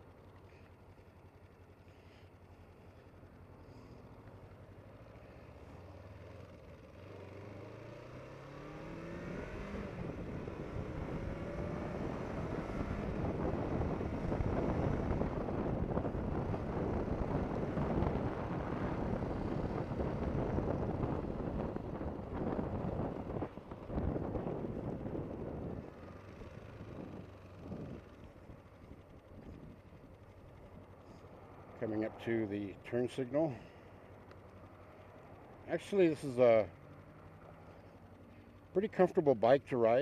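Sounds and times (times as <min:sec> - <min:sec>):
motorcycle engine accelerating: 0:00.0 - 0:40.0
wind rushing over microphone: 0:09.7 - 0:28.2.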